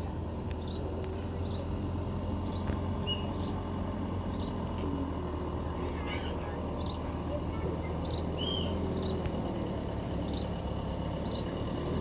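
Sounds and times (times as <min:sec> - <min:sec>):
miniature locomotive rumbling: 0:00.0 - 0:12.0
bird chirping: 0:02.5 - 0:04.7, 0:07.8 - 0:09.3.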